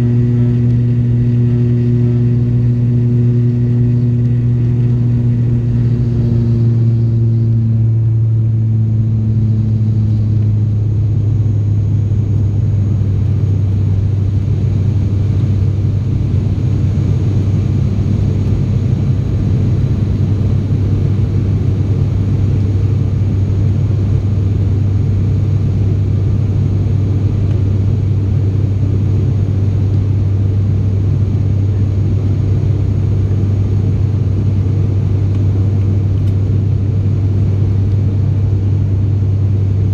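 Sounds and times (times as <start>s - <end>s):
turboprop drone in cabin: 0.0s - 39.9s.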